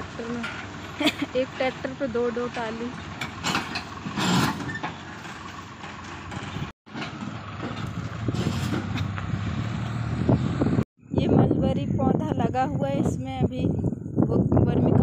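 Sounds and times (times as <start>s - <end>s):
tractor engines running: 0.0s - 10.8s.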